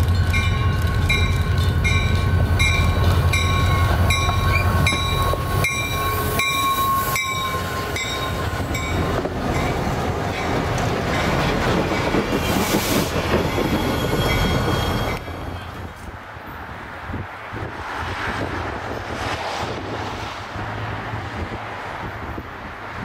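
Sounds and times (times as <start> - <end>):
diesel locomotive engine rumble: 0.0 - 19.1
train wheel and rail noise: 0.0 - 23.0.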